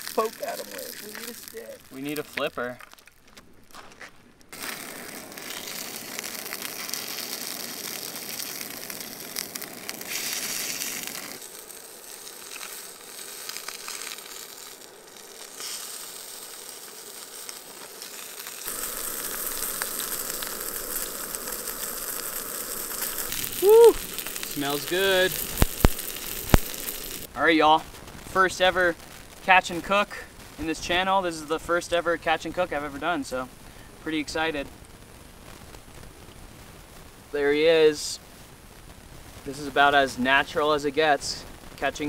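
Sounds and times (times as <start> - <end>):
fish sizzling in a pan: 0.0 - 3.1, 4.5 - 27.3.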